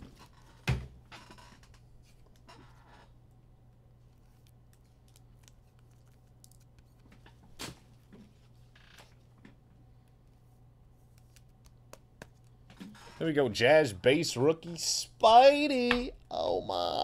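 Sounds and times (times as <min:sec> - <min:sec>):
trading cards clicking and rustling: 0:04.2 - 0:07.6.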